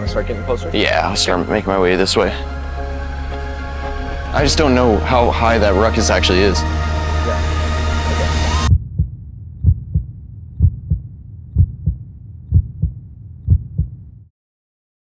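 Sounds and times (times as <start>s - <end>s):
music: 0.0s - 8.7s
heartbeat thumps: 8.3s - 14.2s.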